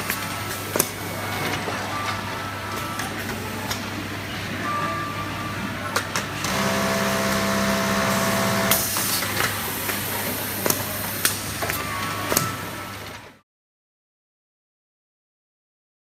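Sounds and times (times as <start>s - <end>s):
sewing machine running: 6.4s - 9.2s.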